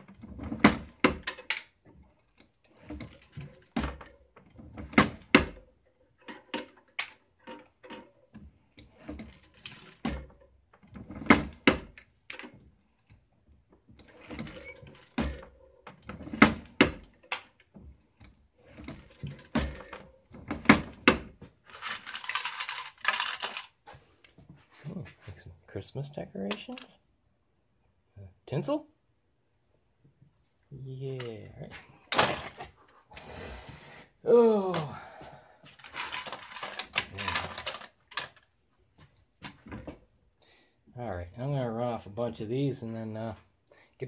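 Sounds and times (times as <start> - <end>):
rustling clattering burst: 21.6 - 23.8, 32.1 - 32.9, 35.8 - 38.4.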